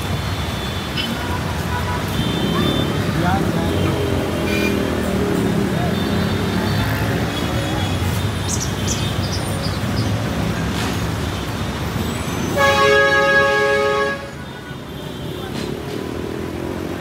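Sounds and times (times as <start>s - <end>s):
road traffic: 0.0s - 17.0s
vehicle horn blast: 12.6s - 15.2s.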